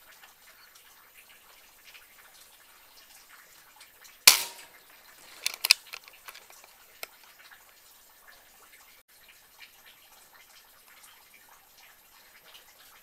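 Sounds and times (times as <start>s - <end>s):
air rifle shot: 4.3s - 4.7s
sharp clicks: 4.3s - 4.7s, 5.3s - 6.7s.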